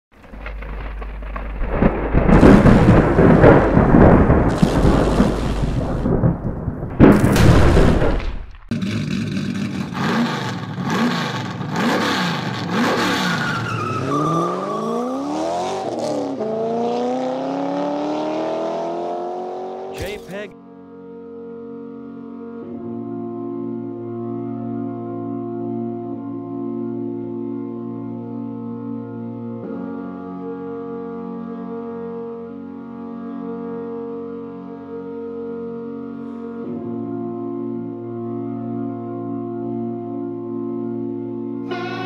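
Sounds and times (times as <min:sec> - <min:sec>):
heavy rumbling roar: 0:00.2 - 0:12.8
car engine revving: 0:08.7 - 0:20.3.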